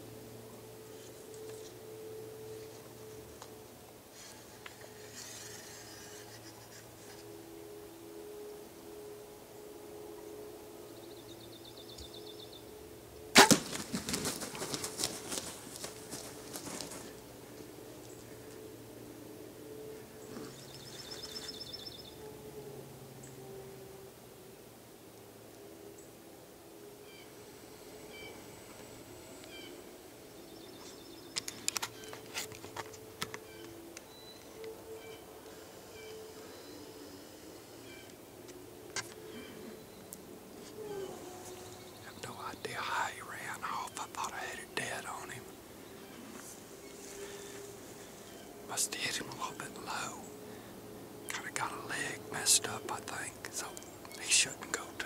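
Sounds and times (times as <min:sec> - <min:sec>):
sharp crack of bow shot: 0:13.3 - 0:14.0
wings flapping hard: 0:13.4 - 0:17.0
bird chirping faintly: 0:19.4 - 0:22.4, 0:27.0 - 0:55.0.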